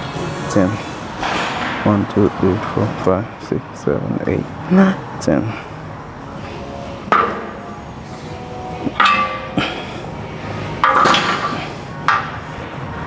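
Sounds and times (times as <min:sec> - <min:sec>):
metal gym equipment clanking: 0:08.9 - 0:09.7, 0:10.8 - 0:12.4.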